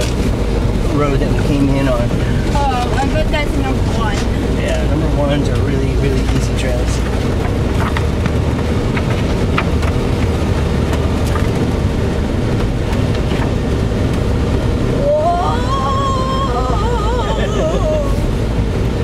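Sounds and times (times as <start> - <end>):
truck engine rumble: 0.0 - 19.0
knocks and rattles: 5.5 - 14.4.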